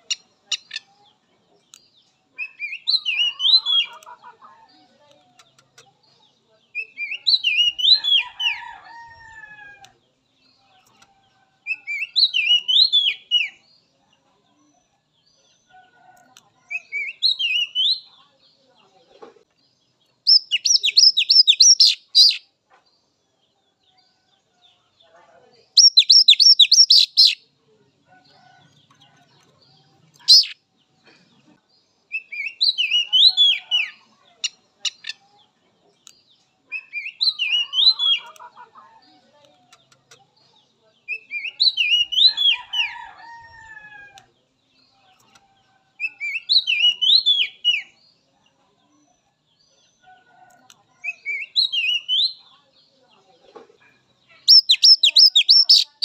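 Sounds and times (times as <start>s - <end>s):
bird singing whistled notes: 20.3s - 22.4s, 25.8s - 27.4s, 54.5s - 56.0s.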